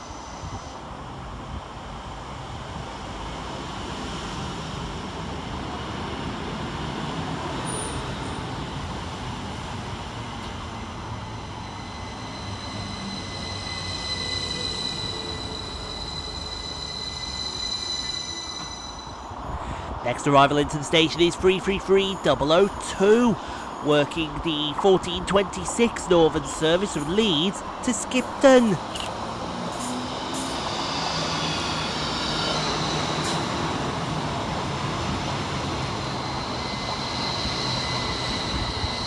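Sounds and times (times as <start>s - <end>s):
high brake squeal: 0.0s - 0.9s, 7.6s - 8.6s, 11.2s - 19.5s, 29.7s - 34.0s, 35.5s - 39.0s
train running past: 0.0s - 39.0s.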